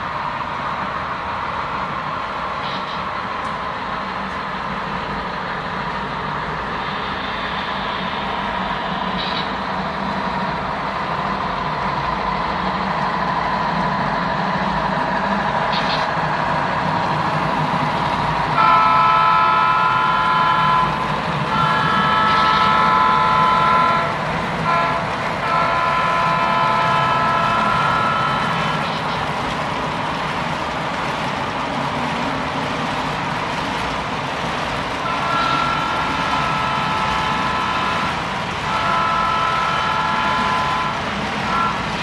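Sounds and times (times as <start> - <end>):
model diesel locomotives rumbling: 0.0 - 42.0
multi-chime horn blasts: 18.6 - 29.0, 38.7 - 41.9.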